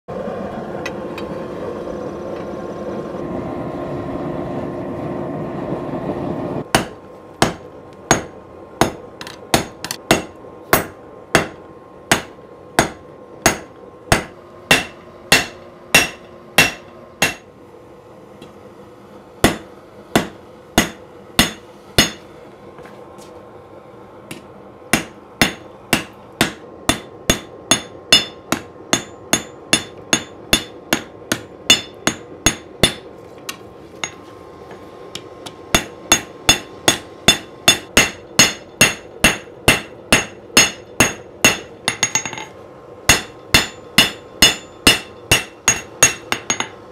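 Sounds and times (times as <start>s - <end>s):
gas forge roaring: 0.1s - 46.9s
hammer ringing on anvil: 6.7s - 17.4s, 19.4s - 22.2s, 25.0s - 33.1s, 35.8s - 42.5s, 43.1s - 46.8s.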